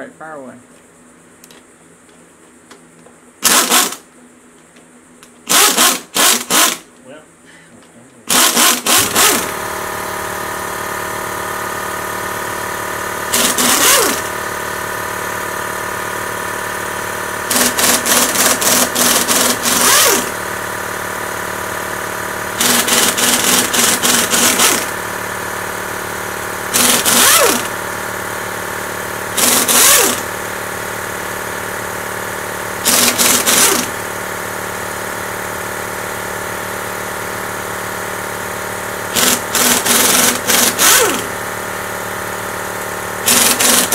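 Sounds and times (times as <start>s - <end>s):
air impact wrench rattling: 3.4s - 4.1s, 5.4s - 6.9s, 8.2s - 43.9s.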